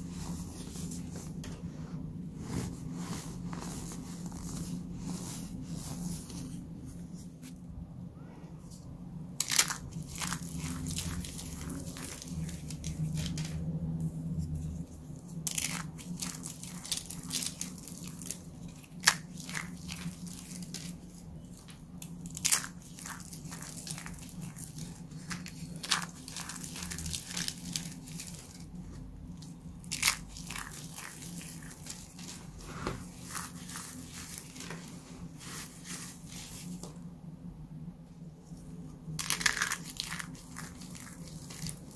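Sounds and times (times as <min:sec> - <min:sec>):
dry flakes crunching and crackling: 0:39.2 - 0:41.9.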